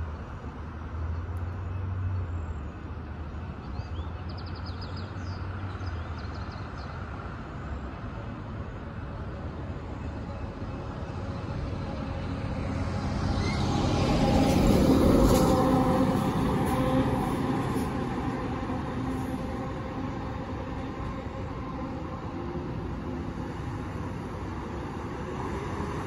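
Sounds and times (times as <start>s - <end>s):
vehicle passing by: 9.7s - 26.0s.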